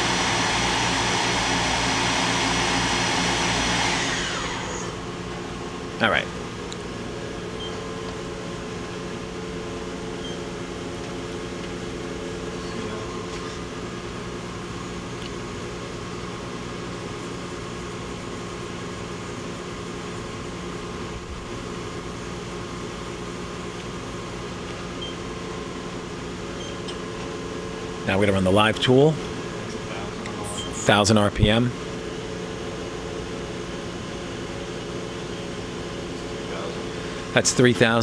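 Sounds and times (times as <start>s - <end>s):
machine tool humming: 0.0s - 5.7s
steady machine tones: 0.0s - 6.6s.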